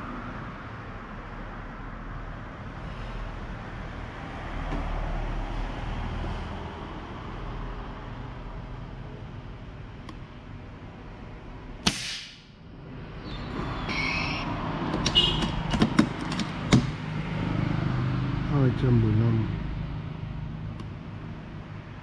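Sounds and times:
air rifle shot: 11.8 - 12.6.

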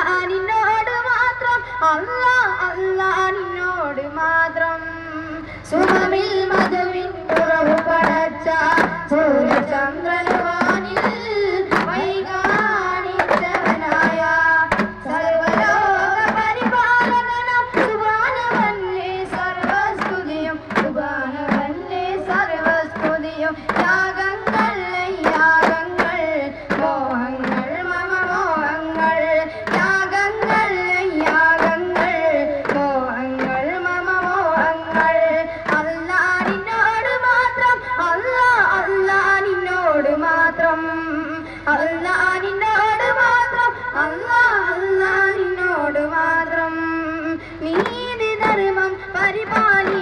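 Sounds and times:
devotional song singing: 0.0 - 50.0
frame drums beating: 5.8 - 37.1, 47.6 - 50.0.

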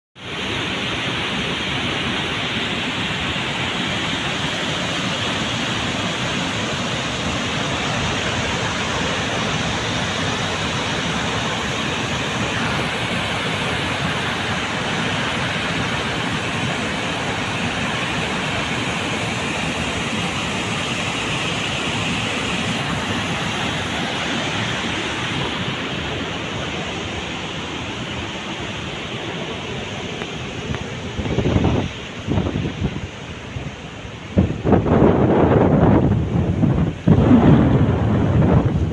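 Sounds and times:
floodwater rushing through spillway: 0.2 - 38.9
wind on microphone: 30.0 - 38.9.

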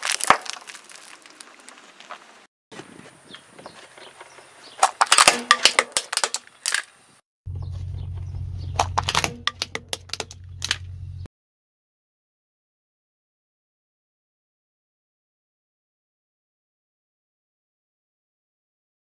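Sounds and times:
tyre crushing crackling wrapper: 0.0 - 2.4, 4.8 - 7.0
car engine low hum: 7.5 - 11.3.

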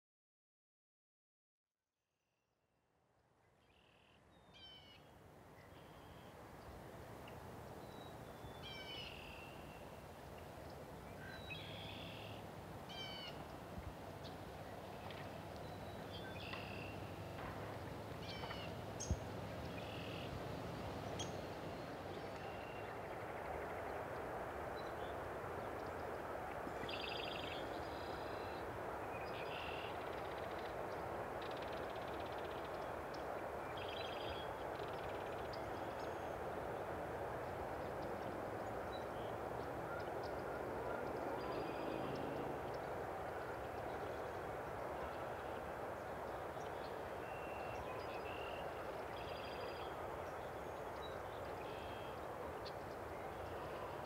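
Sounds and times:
birds calling: 14.2 - 23.2.

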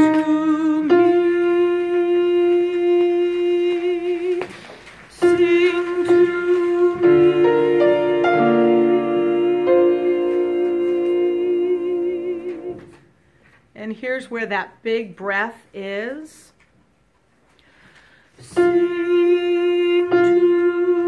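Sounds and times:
alto voice singing held notes: 0.0 - 13.1, 18.4 - 21.0
low accompanying notes: 5.2 - 12.9
person breathing in: 17.6 - 18.4.

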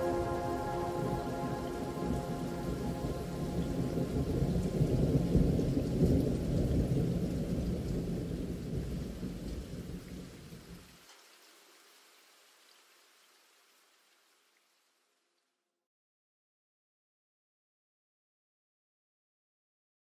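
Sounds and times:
rolling thunder: 0.0 - 10.2
rain falling: 0.0 - 15.3.

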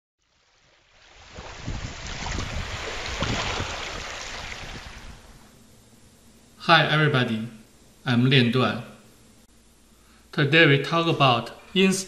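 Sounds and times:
ocean wave rushing: 1.2 - 5.4.

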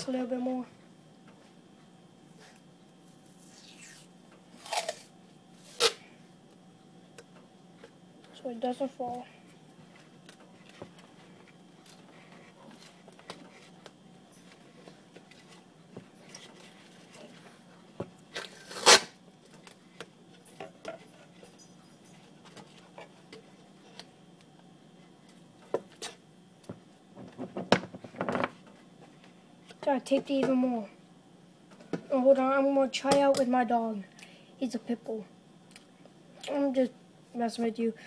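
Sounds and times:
faint low hum: 0.0 - 38.0
tape tearing rip: 3.4 - 6.0, 18.4 - 19.2
tape crackling and rustling: 9.8 - 21.4.

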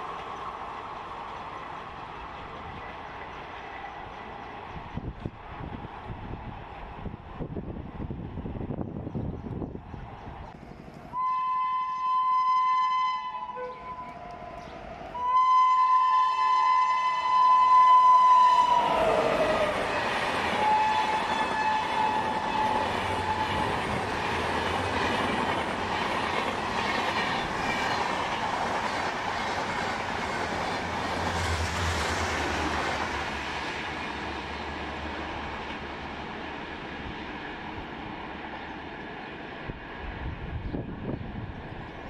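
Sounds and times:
rushing rail noise: 0.0 - 42.0
train horn: 11.1 - 24.0.

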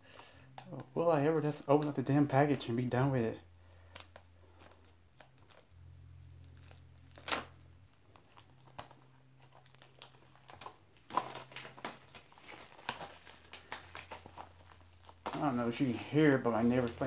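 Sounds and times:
plastic wrap crinkling and tearing: 3.9 - 17.0.

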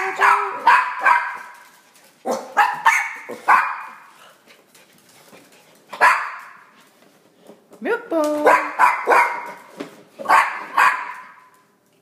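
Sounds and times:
small dogs barking: 0.0 - 1.6, 2.2 - 4.1, 6.0 - 6.6, 8.4 - 11.5.

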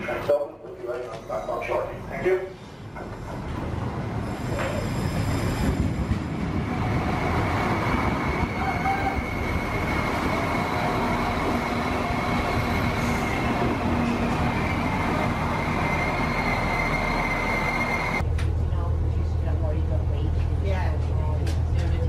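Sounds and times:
train rumble: 0.0 - 22.0
train wheel squeal: 4.2 - 6.0, 8.1 - 18.2
low hum inside carriage: 15.8 - 22.0.

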